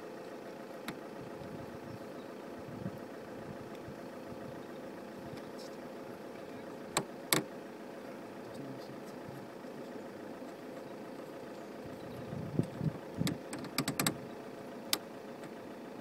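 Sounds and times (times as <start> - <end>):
steady engine-like hum: 0.0 - 16.0
sharp plastic clicks: 13.2 - 14.2.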